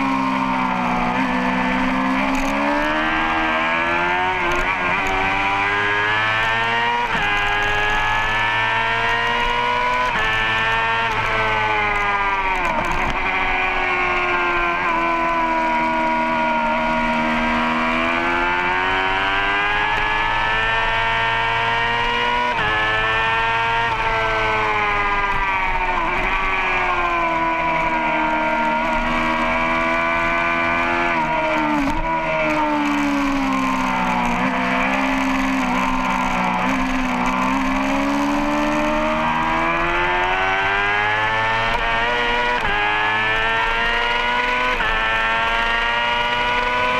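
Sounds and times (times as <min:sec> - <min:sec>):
motorbike engine revving: 0:00.0 - 0:46.9.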